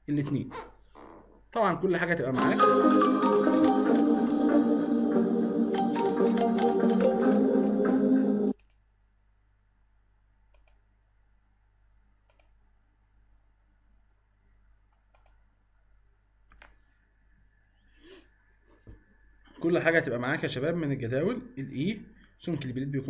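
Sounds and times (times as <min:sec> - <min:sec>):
background music: 0:02.4 - 0:08.6
computer mouse clicks: 0:08.6 - 0:08.8, 0:10.5 - 0:10.9, 0:12.2 - 0:12.6, 0:14.9 - 0:15.4.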